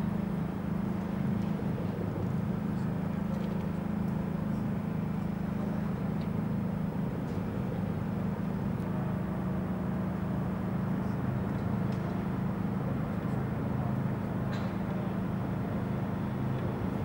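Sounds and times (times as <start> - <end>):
low hum and rumble: 0.0 - 17.0.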